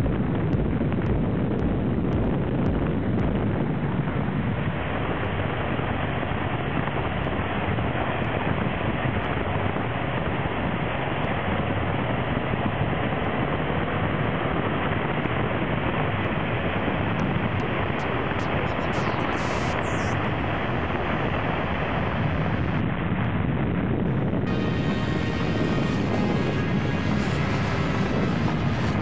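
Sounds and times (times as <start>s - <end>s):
wind rushing over microphone: 0.0s - 29.0s
motorcycle engine: 24.5s - 29.0s.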